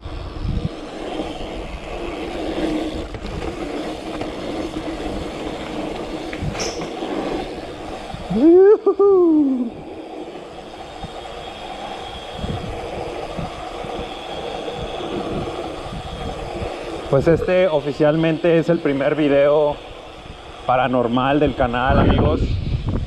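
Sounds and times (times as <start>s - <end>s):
bike tyres on road: 0.0s - 23.0s
loud rising and falling call: 8.3s - 9.8s.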